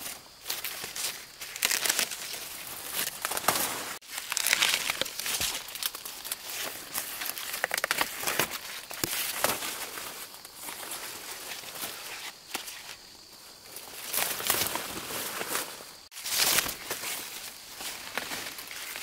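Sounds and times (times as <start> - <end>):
dry crinkling and rustling: 0.0 - 13.0.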